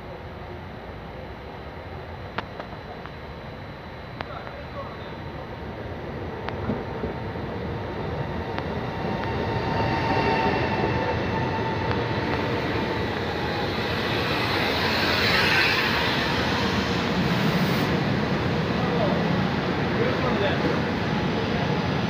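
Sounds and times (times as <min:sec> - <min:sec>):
faint steady whine: 0:00.0 - 0:10.4
electric train pulling in: 0:00.4 - 0:22.0
train hiss: 0:08.9 - 0:21.4.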